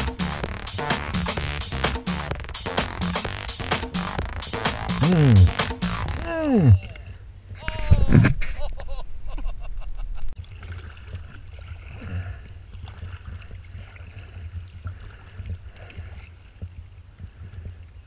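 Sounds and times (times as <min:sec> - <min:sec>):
music: 0:00.0 - 0:06.3
paddle dipping in water: 0:10.4 - 0:18.0
water lapping at hull: 0:10.4 - 0:18.0.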